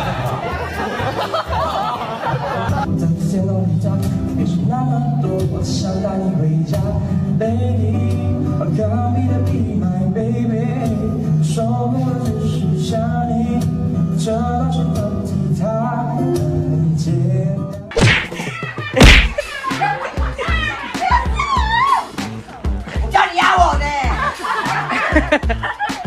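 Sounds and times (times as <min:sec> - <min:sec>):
man singing: 0:02.9 - 0:17.9.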